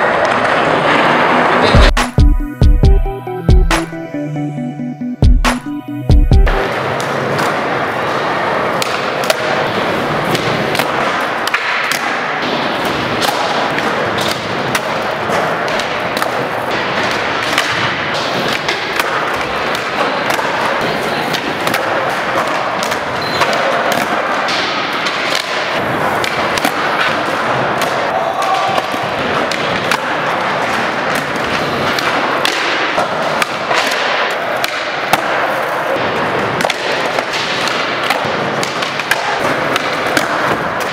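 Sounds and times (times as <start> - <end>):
skateboard wheels rolling on concrete: 0.0 - 1.8.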